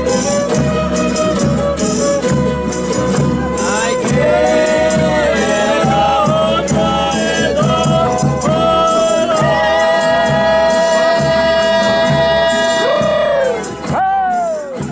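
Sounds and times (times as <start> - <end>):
strummed acoustic guitars: 0.0 - 14.9
group singing in several voices: 3.6 - 13.7.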